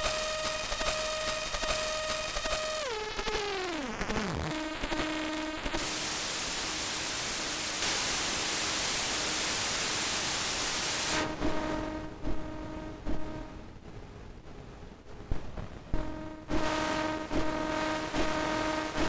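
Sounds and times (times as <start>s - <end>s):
white noise wash: 4.3s - 19.0s
synthesizer held note: 11.1s - 13.6s, 16.0s - 19.0s.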